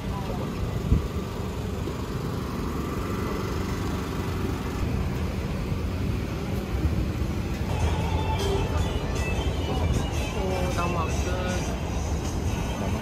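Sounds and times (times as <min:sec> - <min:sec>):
distant traffic rumble: 0:00.0 - 0:13.0.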